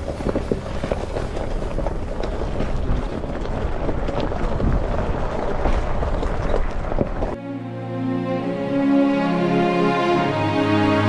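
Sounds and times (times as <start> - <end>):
vehicle driving over rough ground: 0.0 - 7.4
wind buffeting microphone: 0.0 - 7.4.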